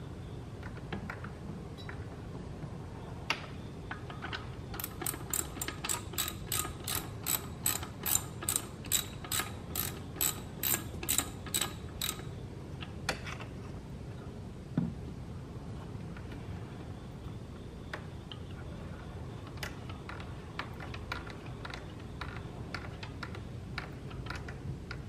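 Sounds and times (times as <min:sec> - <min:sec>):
ratchet wrench clicking: 0:04.8 - 0:12.3.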